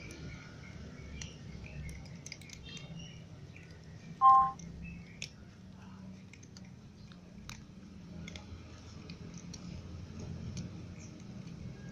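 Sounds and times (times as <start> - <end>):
cats crunching dry kibble: 0.0 - 11.9
low steady hum: 4.1 - 4.8.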